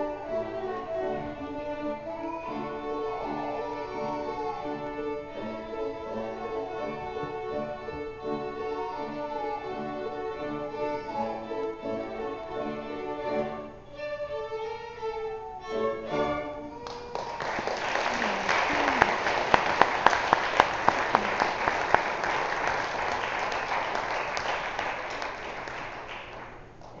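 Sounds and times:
violin playing: 0.0 - 17.0
audience applause: 16.8 - 27.0.

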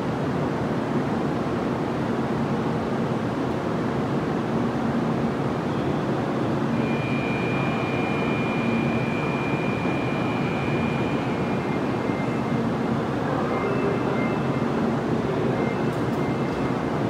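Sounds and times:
railway platform rumbling: 0.0 - 17.0
faint high whine: 5.6 - 17.0.

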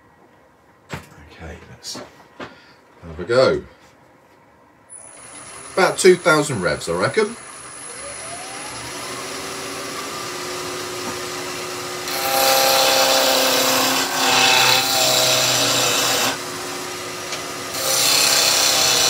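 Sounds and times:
wood lathe whining: 4.9 - 6.5, 7.2 - 19.0.

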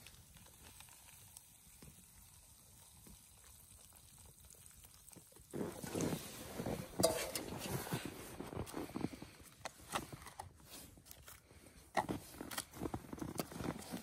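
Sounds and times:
water pouring from kettle: 0.0 - 8.5
crunching and handling noises: 4.6 - 14.0.

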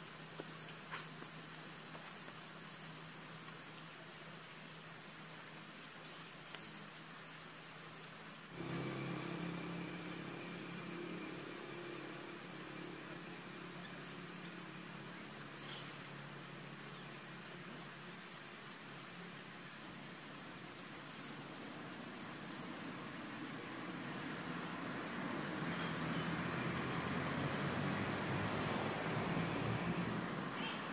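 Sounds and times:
constant hiss: 0.0 - 30.9
high-pitched insect trilling: 0.0 - 30.9
low hum: 8.5 - 15.4.

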